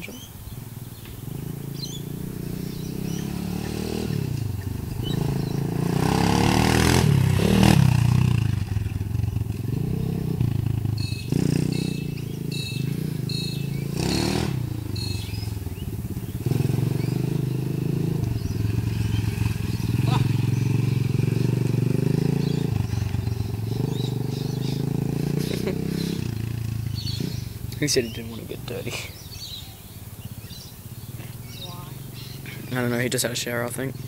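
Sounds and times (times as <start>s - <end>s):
motorbike engine revving: 0.1s - 34.0s.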